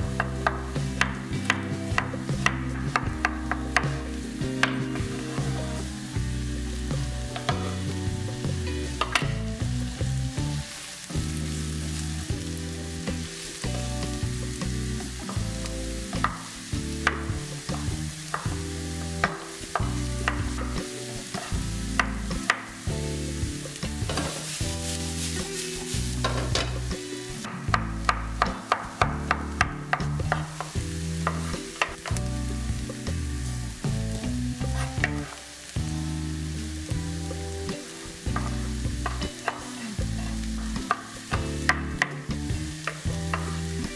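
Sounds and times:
vegetables sizzling in frying pan: 0.0 - 43.9
knife chopping on wooden board: 27.5 - 32.2.

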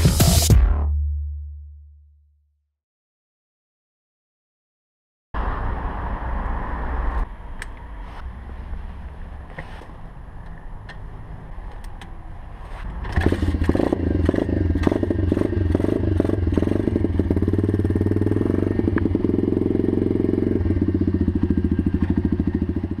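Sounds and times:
pit bike engine idling: 13.2 - 23.0.

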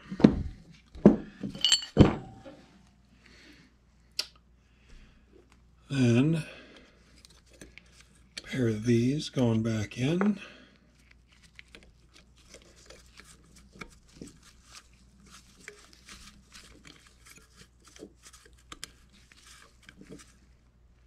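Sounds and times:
gloved hands rustling: 10.9 - 21.0.

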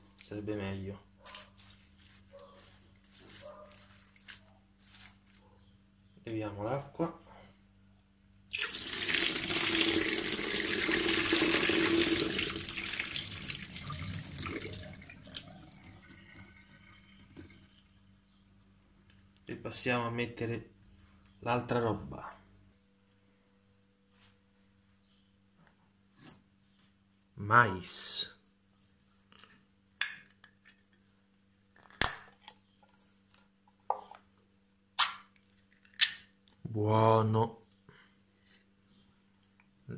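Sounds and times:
water splashing into steel sink: 8.5 - 16.5.

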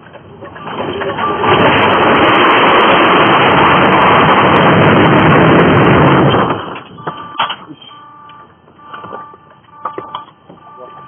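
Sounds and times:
truck crashing: 0.0 - 8.1
loud rough continuous noise: 0.0 - 11.0.

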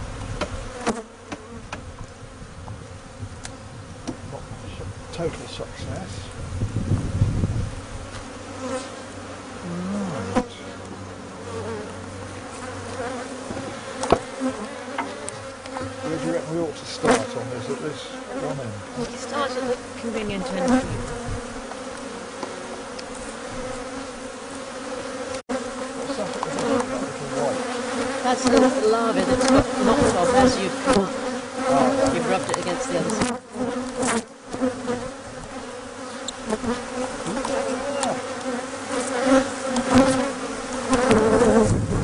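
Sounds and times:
bees buzzing: 0.0 - 42.0.

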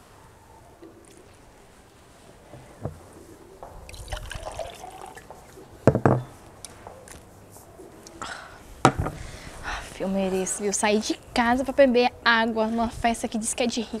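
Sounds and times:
water pouring into cup: 3.9 - 5.3.

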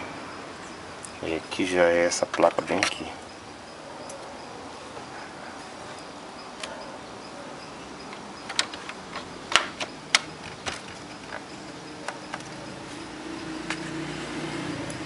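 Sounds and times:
plastic parts clicking and tapping: 8.1 - 12.6.

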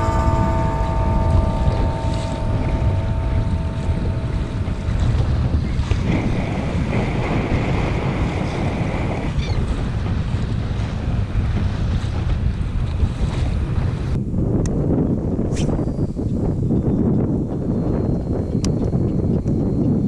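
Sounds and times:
wind on microphone: 0.0 - 20.0
water splashing against kayak hull: 0.6 - 14.2.

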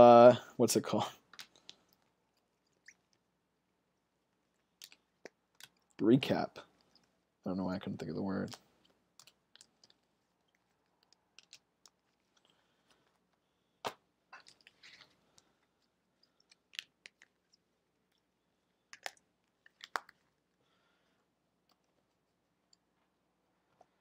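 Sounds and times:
plastic cards clicking and tapping: 10.9 - 12.1.

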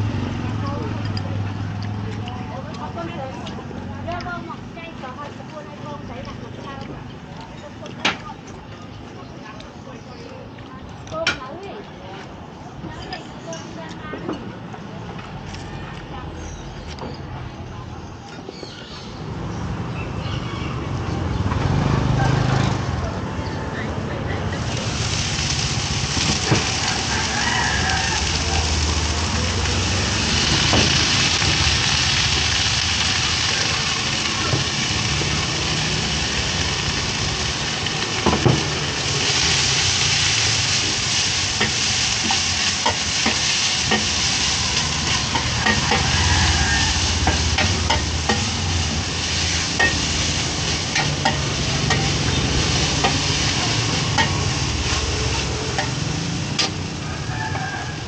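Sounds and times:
food sizzling in hot oil: 24.5 - 58.0.

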